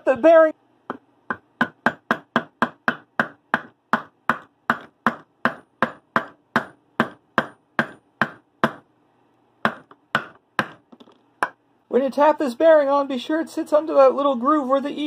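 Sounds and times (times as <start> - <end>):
hammer tapping on metal: 0.9 - 8.8.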